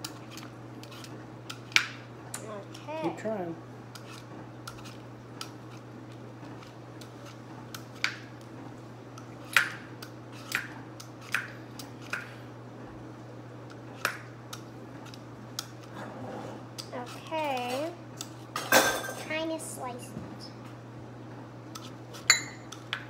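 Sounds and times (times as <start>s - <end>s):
steady low hum: 0.0s - 23.0s
peeler scraping apple skin: 3.9s - 8.1s.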